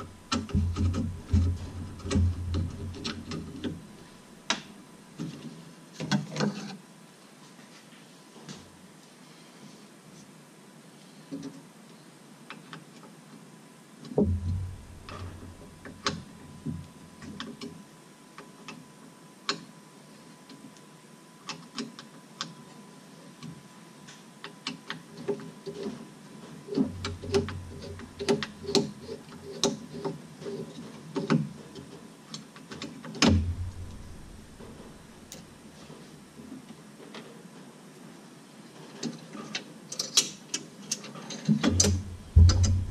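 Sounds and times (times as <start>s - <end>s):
dull knocks: 0.0s - 3.6s, 14.2s - 15.9s, 33.2s - 35.3s, 41.8s - 42.9s.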